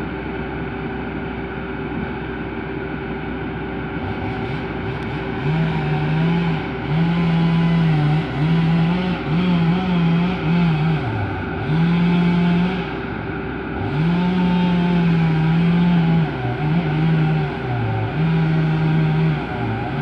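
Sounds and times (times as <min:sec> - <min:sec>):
excavator diesel engine hum: 0:00.0 - 0:20.0
chainsaw revving: 0:04.0 - 0:13.2, 0:13.8 - 0:20.0.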